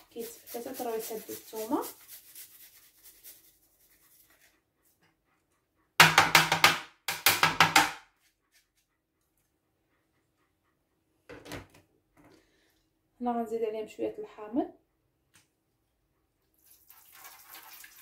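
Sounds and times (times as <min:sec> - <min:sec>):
garlic grating on grater: 0:00.0 - 0:04.4.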